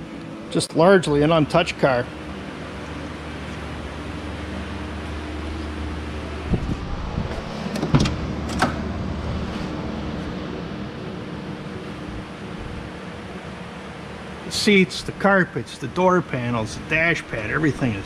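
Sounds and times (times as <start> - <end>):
low background hum: 0.0 - 18.0
car door latch clicks and knocks: 7.7 - 8.8.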